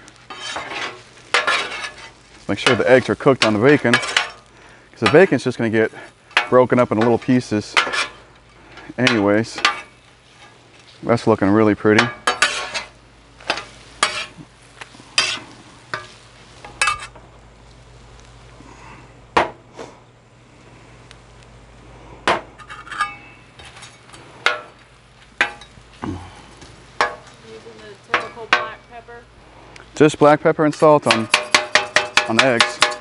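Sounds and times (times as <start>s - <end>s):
faint food sizzle: 0.0s - 22.3s, 23.1s - 33.0s
metal spatula clanking on griddle: 0.3s - 5.4s, 6.3s - 8.2s, 9.0s - 10.0s, 11.9s - 14.4s, 15.2s - 17.1s, 22.3s - 23.8s, 25.4s - 25.8s, 27.0s - 27.4s, 28.1s - 28.9s, 31.0s - 33.0s.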